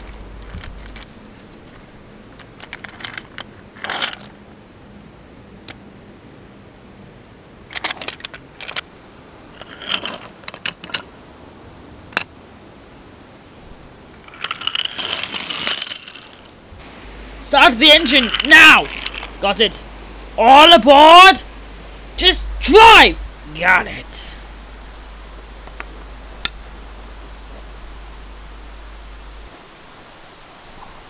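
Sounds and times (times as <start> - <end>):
clicks rattles and scrapes: 0.0 - 4.4, 7.7 - 8.9, 9.6 - 11.1, 14.2 - 16.5.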